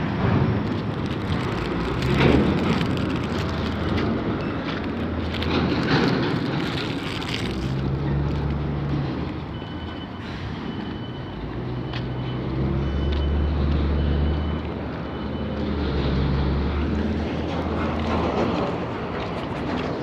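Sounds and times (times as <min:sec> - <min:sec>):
heavy vehicle engine drone: 0:00.0 - 0:20.0
faint high beep: 0:09.6 - 0:15.7.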